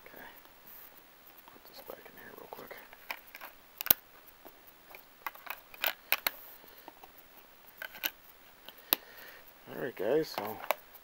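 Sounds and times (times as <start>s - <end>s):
plastic disc case clicks: 7.8s - 9.0s, 10.3s - 10.8s.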